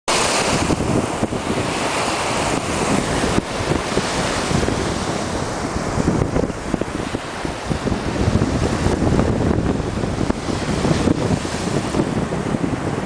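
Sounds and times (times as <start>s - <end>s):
sea surf: 0.1s - 13.0s
wind buffeting microphone: 0.1s - 13.0s.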